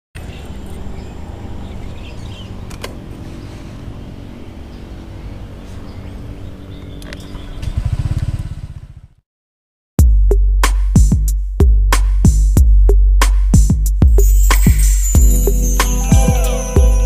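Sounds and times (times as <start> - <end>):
scooter engine idling: 7.4 - 9.2
drum machine music beat: 10.0 - 17.0.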